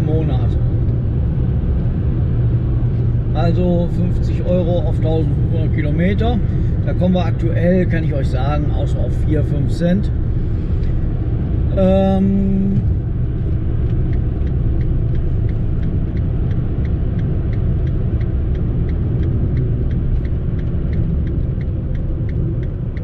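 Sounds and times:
car road and engine rumble: 0:00.0 - 0:23.0
turn indicator ticking: 0:10.0 - 0:23.0.

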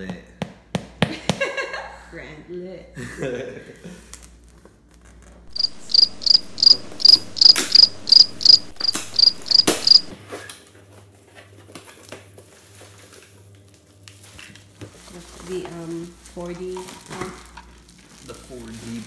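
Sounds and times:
cricket chirping: 0:05.5 - 0:10.2
plastic rustling: 0:11.1 - 0:19.0.

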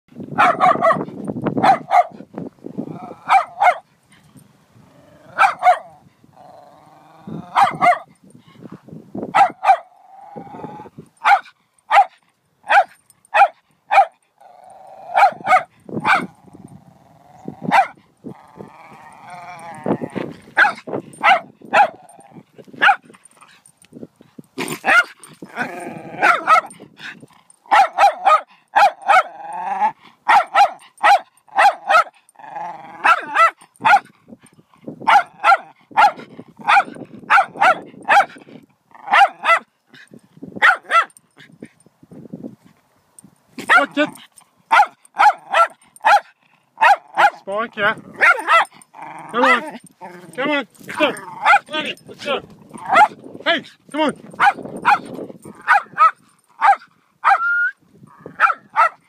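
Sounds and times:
small dog barking sharply: 0:00.4 - 0:01.0, 0:01.6 - 0:02.2, 0:03.3 - 0:03.8, 0:05.4 - 0:05.9, 0:07.6 - 0:08.1, 0:09.3 - 0:09.9, 0:11.2 - 0:14.2, 0:15.2 - 0:16.3, 0:20.6 - 0:22.0, 0:22.8 - 0:23.1, 0:24.8 - 0:25.2, 0:26.2 - 0:26.7, 0:27.7 - 0:29.3, 0:30.3 - 0:32.1, 0:33.1 - 0:34.1, 0:35.1 - 0:38.3, 0:39.1 - 0:39.7, 0:40.6 - 0:41.1, 0:43.6 - 0:44.0, 0:44.7 - 0:47.4, 0:48.2 - 0:48.7, 0:52.8 - 0:53.2, 0:54.4 - 0:57.4, 0:58.4 - 0:59.0
dog growling: 0:02.8 - 0:03.6, 0:04.8 - 0:07.9, 0:09.9 - 0:11.0, 0:14.4 - 0:15.5, 0:16.2 - 0:21.2, 0:21.8 - 0:22.6, 0:24.6 - 0:27.6, 0:29.0 - 0:30.2, 0:32.3 - 0:33.5, 0:46.4 - 0:53.2.

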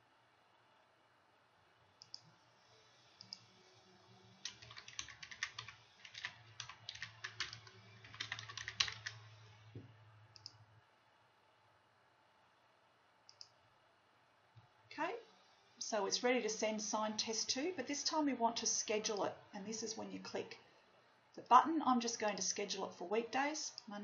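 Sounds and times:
computer keyboard typing: 0:04.4 - 0:09.2.

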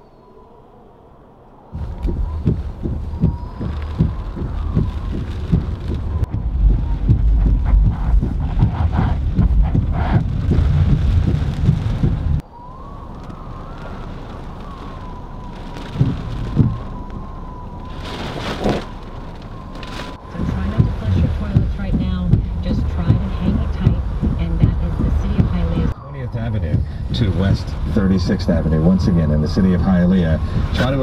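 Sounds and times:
wind buffeting a car: 0:01.7 - 0:31.0
thumps: 0:01.8 - 0:12.4, 0:15.7 - 0:26.0
heavy rain on a car: 0:01.8 - 0:26.0, 0:26.6 - 0:31.0.

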